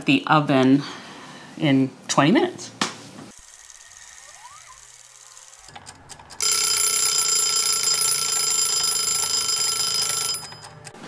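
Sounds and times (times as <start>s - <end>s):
kitchen timer bell ringing: 6.4s - 10.9s
kitchen timer clicks: 7.7s - 11.0s.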